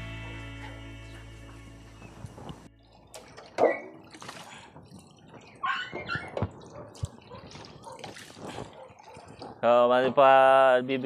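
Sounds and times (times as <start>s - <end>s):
hose water into metal basin: 2.7s - 10.3s.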